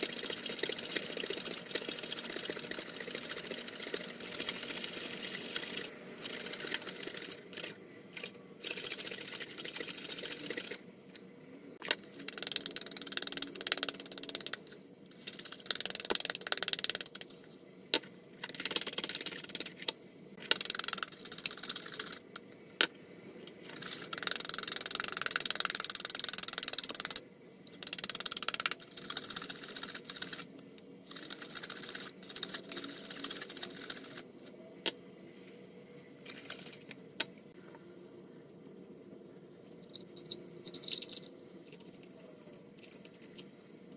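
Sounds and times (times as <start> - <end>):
whisk scraping ceramic bowl: 0.0 - 10.8.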